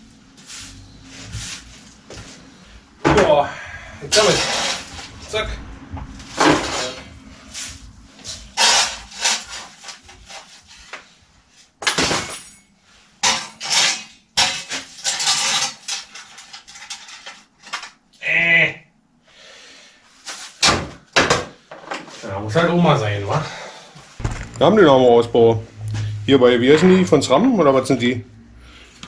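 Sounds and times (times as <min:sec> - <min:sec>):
brush sweeping into dustpan: 0:00.4 - 0:01.8.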